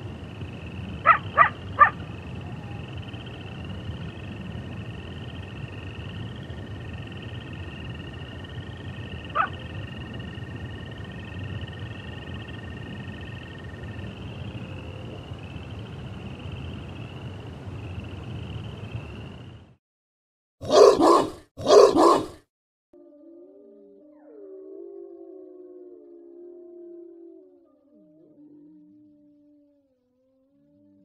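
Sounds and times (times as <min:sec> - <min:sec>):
warbling chorus of calling animals: 0:00.6 - 0:03.7, 0:07.5 - 0:15.4, 0:20.6 - 0:22.4
sharp animal call: 0:01.0 - 0:02.0, 0:09.3 - 0:09.6, 0:20.6 - 0:22.4.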